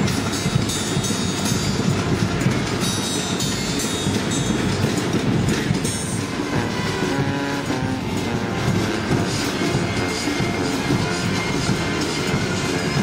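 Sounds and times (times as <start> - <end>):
drums beating: 0.0 - 13.0
held horn notes: 6.0 - 13.0
brass band playing: 6.2 - 13.0.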